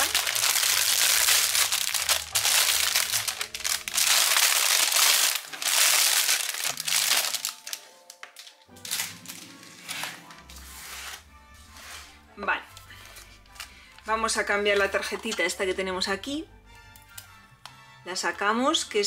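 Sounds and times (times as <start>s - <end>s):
plastic wrapping crinkling: 0.0s - 12.0s
soft music: 0.0s - 19.0s.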